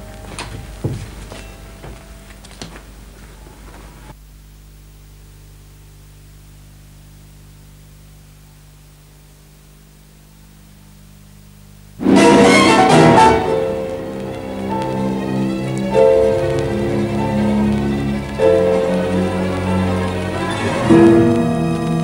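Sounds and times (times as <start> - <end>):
low electrical hum and hiss: 0.0 - 22.0
plucked string music: 12.0 - 22.0.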